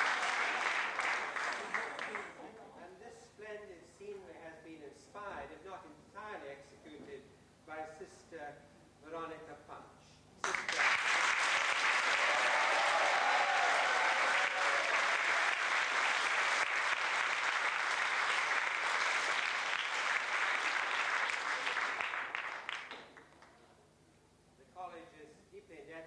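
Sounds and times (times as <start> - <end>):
audience applauding: 0.0 - 2.4, 10.4 - 23.6.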